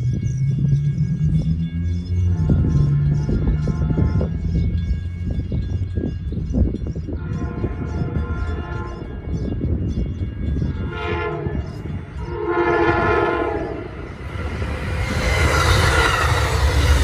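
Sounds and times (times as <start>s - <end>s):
train passing on rails: 0.0s - 17.0s
train air horn blasts: 2.3s - 4.6s, 7.2s - 9.2s, 10.7s - 14.2s.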